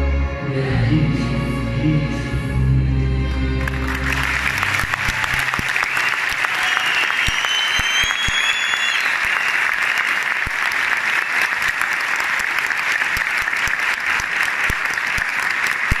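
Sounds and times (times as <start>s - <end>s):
audience applauding: 3.6s - 16.0s.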